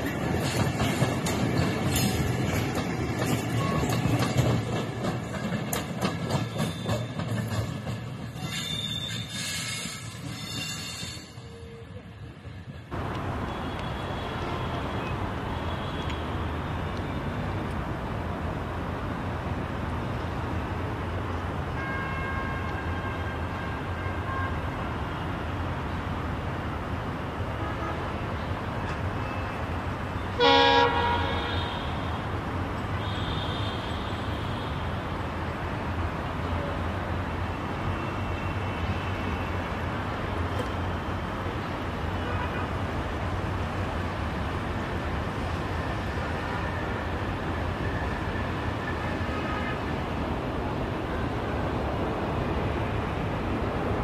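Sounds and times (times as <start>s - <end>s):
train horn blast: 30.3s - 32.2s.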